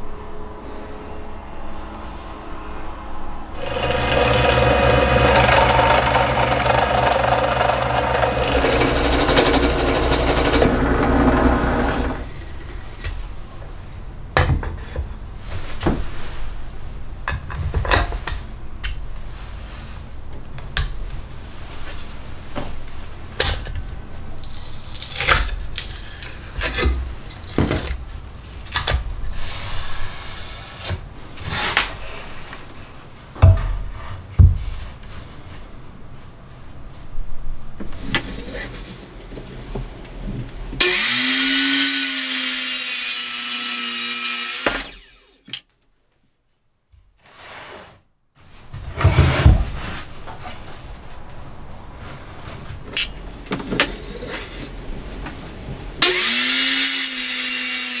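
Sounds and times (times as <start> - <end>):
drill press boring through wood: 3.6 - 12.4, 56.0 - 58.0.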